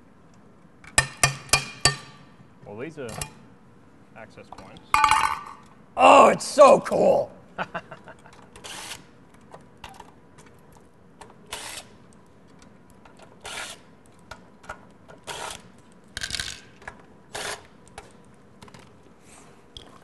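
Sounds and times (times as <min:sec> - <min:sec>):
cordless drill-driver bursts: 0:08.6 - 0:09.0.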